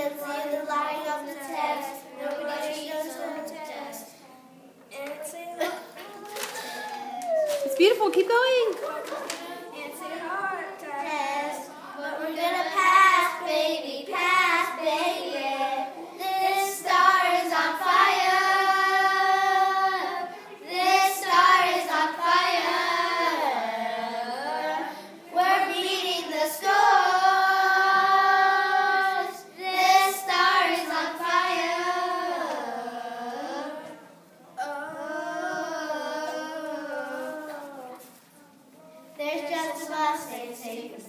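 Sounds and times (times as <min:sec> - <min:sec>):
children singing: 0:09.0 - 0:38.1.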